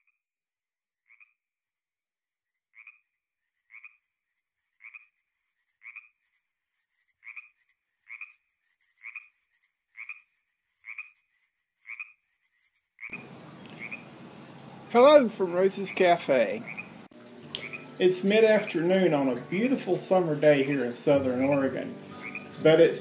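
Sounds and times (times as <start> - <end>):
frog croaking: 1.1 - 1.3, 2.8 - 3.0, 3.7 - 4.1, 4.8 - 6.4, 7.1 - 12.3, 13.0 - 14.2, 15.8 - 18.0, 21.4 - 22.8.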